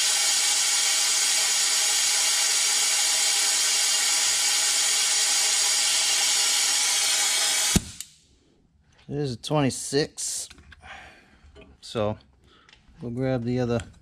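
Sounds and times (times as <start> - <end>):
air tool hissing: 0.0 - 8.1.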